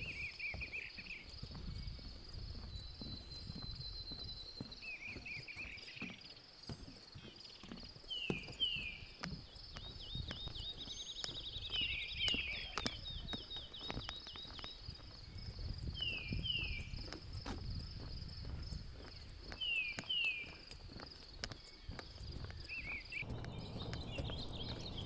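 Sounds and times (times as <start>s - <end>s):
birds whistling: 0.0s - 1.3s, 2.6s - 6.4s, 9.7s - 14.8s, 21.7s - 25.0s
footsteps on a boardwalk: 0.0s - 25.0s
high insect hum: 14.9s - 25.0s
bird trill: 22.6s - 25.0s.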